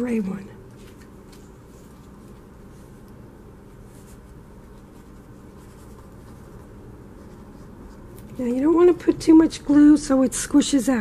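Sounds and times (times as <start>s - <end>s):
paper scratching and rubbing: 3.7s - 9.0s.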